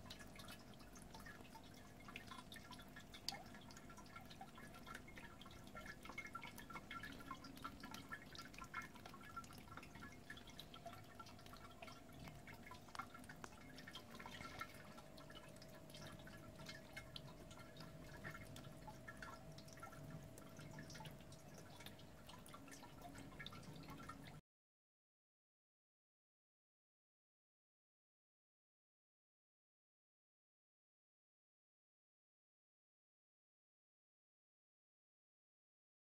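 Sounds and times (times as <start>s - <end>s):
faint steady hum: 0.0s - 24.4s
water dripping and trickling: 0.0s - 24.4s.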